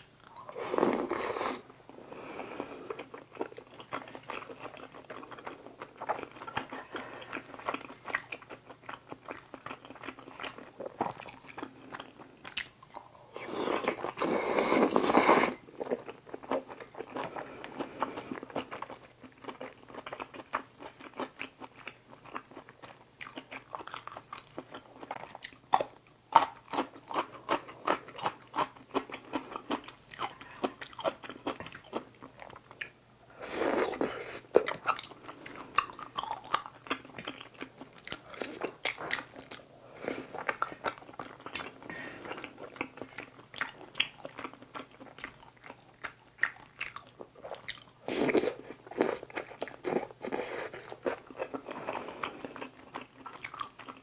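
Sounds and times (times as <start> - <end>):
wet chewing and mouth smacks: 40.4 - 51.8.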